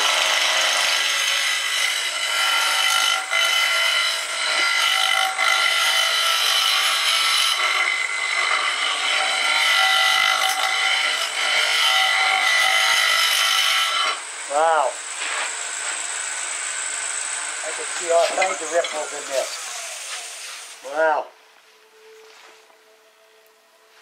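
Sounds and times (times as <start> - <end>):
wood lathe whining: 0.0 - 20.9
hiss of wood shavings: 14.5 - 16.7, 17.6 - 21.1.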